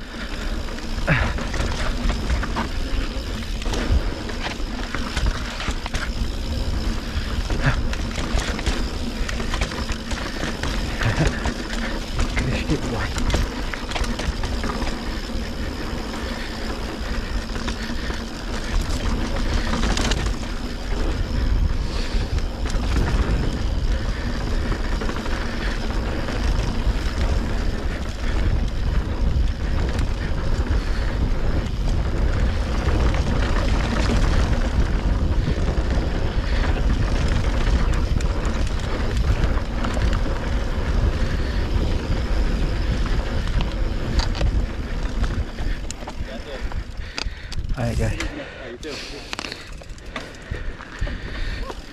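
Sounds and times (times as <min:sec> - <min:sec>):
bike rattling over bumps: 0:00.0 - 0:51.9
bike tyres on dirt: 0:00.0 - 0:51.9
wind noise on microphone: 0:16.8 - 0:48.3.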